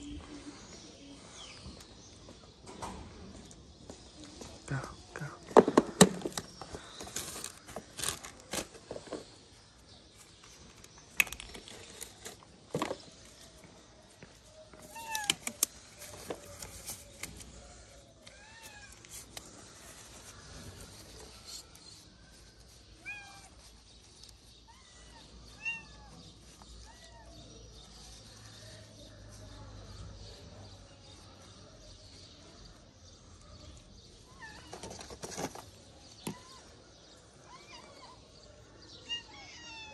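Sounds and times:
plastic wrapping rustling: 5.9 - 25.6.

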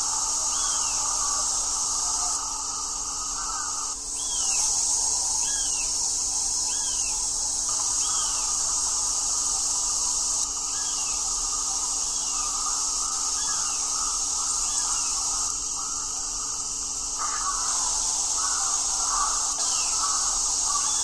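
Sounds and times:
bird calling: 0.0 - 4.6, 10.6 - 21.0
steady high hiss: 0.0 - 21.0.

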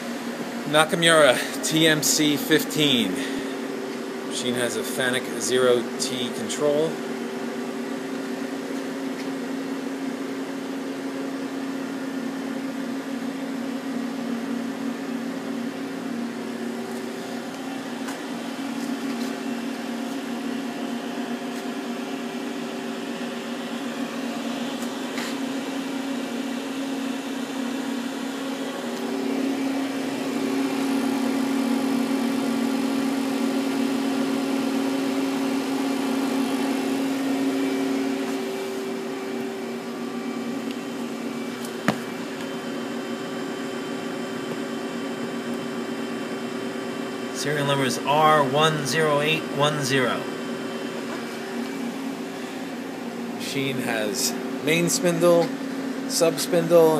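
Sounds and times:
lathe mechanical hum: 0.0 - 56.9.

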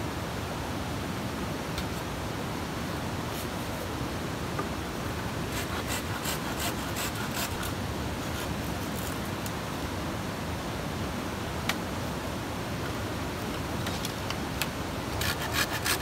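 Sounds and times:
steady background hiss: 0.0 - 16.0
blade scraping bamboo: 5.5 - 9.3, 15.1 - 16.0.

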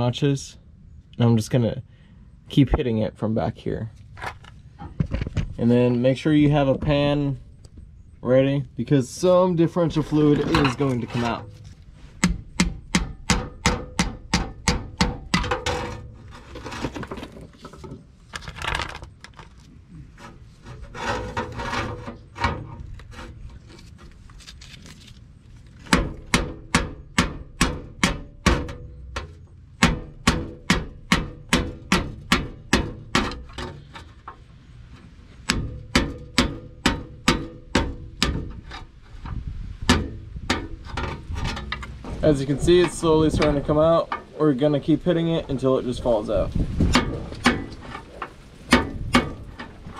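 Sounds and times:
metal scraping and rubbing: 9.0 - 49.9
hammer striking pry bar: 12.2 - 15.8, 25.9 - 28.9, 29.8 - 33.9, 35.4 - 38.7.

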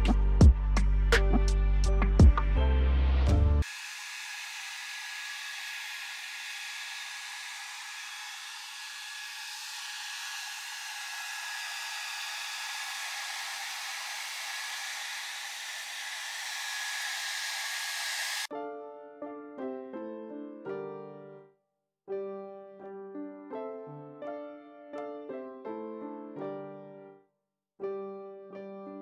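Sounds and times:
hair dryer blowing: 3.6 - 18.5.

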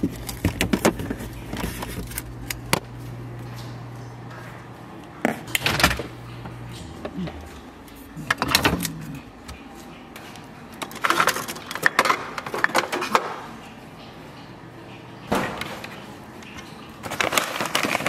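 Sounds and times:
jars and containers clattering: 10.8 - 13.5
snack bag crinkling: 17.0 - 18.0.

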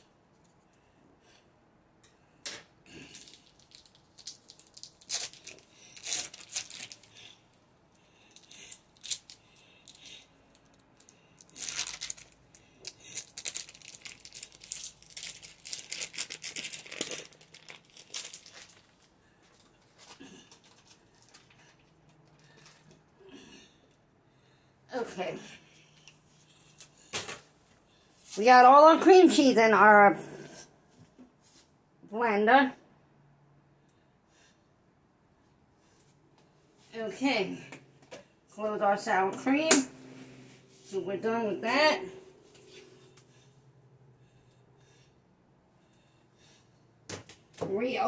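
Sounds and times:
foil wrapper crinkling and tearing: 3.1 - 7.3, 8.4 - 10.0, 11.4 - 19.1.

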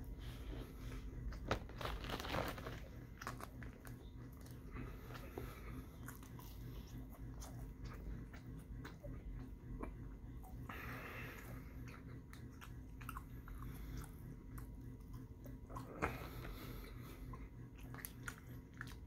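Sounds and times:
person chewing crisp fries: 0.2 - 19.0.

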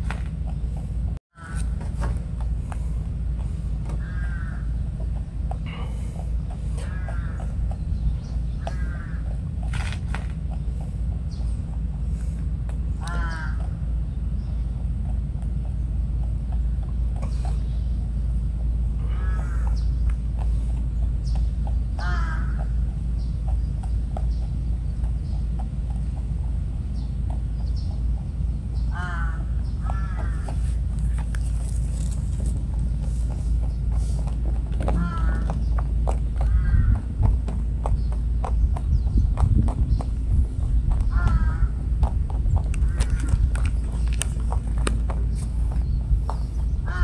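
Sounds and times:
bird calling: 0.0 - 2.1, 2.7 - 47.0
low outdoor rumble: 0.0 - 47.0
crow cawing: 1.4 - 1.8, 4.0 - 4.7, 6.8 - 7.5, 8.6 - 9.3, 13.0 - 13.7, 19.0 - 19.8, 22.0 - 22.7, 28.9 - 30.6, 34.9 - 35.6, 36.4 - 37.1, 41.1 - 41.8
rabbit crunching food pellets: 8.4 - 13.7, 30.0 - 38.8, 42.0 - 46.6.

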